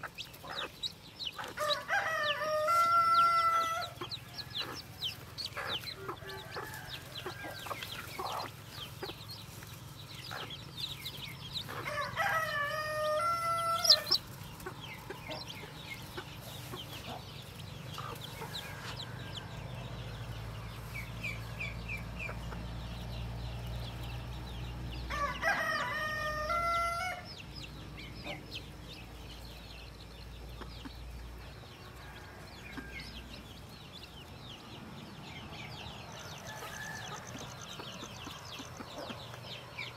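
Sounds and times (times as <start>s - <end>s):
chicks peeping: 0.0s - 39.9s
rooster crowing: 1.6s - 5.1s, 11.8s - 14.2s, 25.0s - 27.3s, 36.2s - 37.8s.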